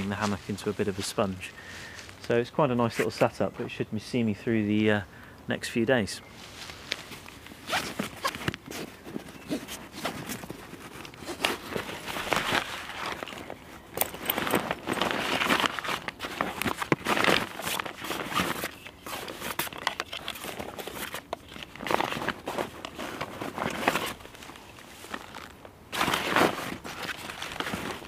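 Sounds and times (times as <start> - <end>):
fabric rustling and crinkling: 6.3 - 28.0.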